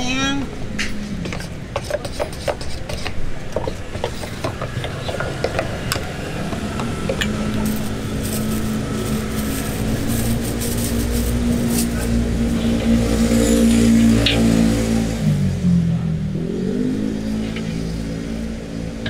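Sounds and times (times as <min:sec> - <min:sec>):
ladle scraping metal bowl: 0:01.2 - 0:11.2
plastic bag rustling: 0:07.2 - 0:12.0.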